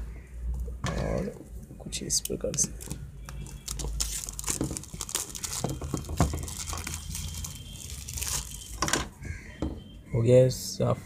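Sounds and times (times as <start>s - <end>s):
plastic film tearing and crackling: 2.6s - 8.9s.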